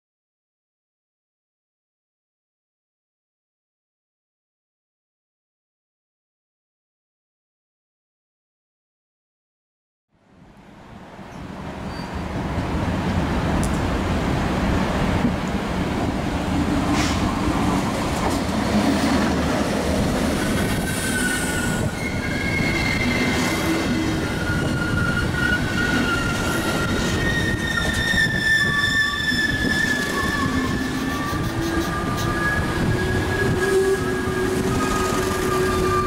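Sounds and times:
diesel locomotive rumbling: 0:11.0 - 0:36.0
train wheels squealing: 0:11.3 - 0:12.3, 0:20.3 - 0:36.0.

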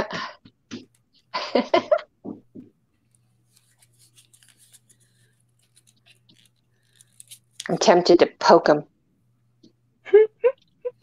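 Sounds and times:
low steady hum: 0:00.0 - 0:11.0
scratchy rustling: 0:02.9 - 0:07.9.

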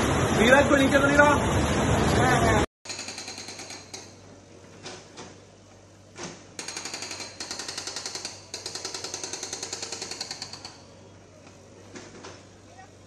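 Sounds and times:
hydraulic breaker hammering concrete: 0:02.9 - 0:04.2, 0:06.6 - 0:10.9.

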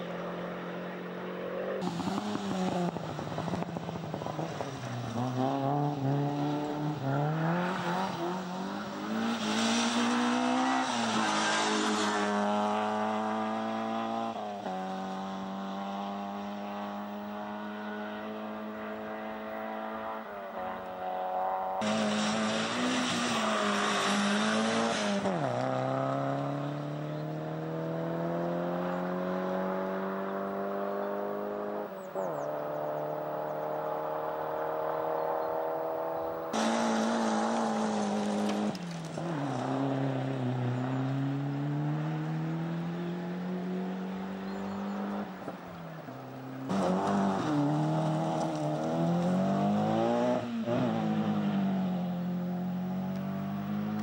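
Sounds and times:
rally car engines revving: 0:00.0 - 0:54.0
tyres rushing on gravel: 0:21.8 - 0:25.2, 0:36.6 - 0:40.2.

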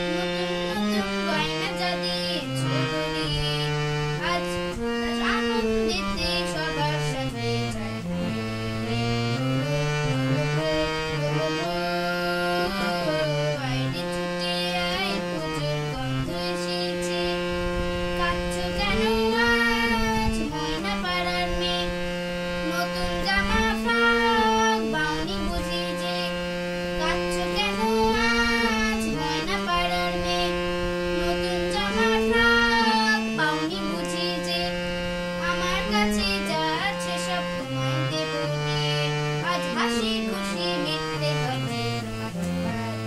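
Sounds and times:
boy singing: 0:00.0 - 0:43.0
harmonium: 0:00.0 - 0:43.0.

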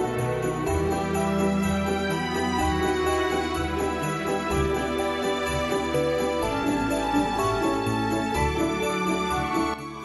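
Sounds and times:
festive holiday tune with sleigh bells: 0:00.0 - 0:10.0.

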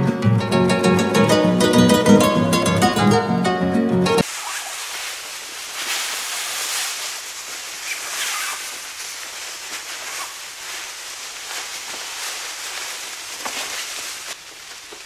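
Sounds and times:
plucked-string music: 0:00.0 - 0:04.2
steady hiss: 0:04.2 - 0:15.0.

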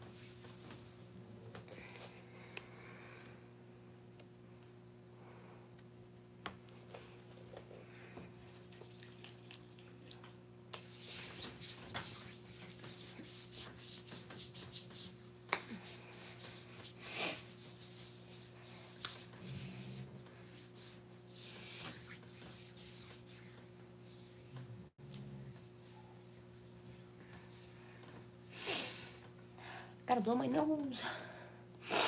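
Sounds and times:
faint steady hum: 0:00.0 - 0:32.0
hands rubbing skin: 0:08.4 - 0:24.8.

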